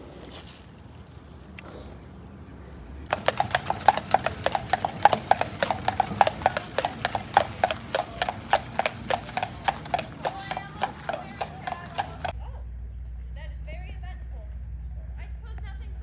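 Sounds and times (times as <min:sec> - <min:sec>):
horse hooves clip-clopping on road: 0:03.0 - 0:12.4.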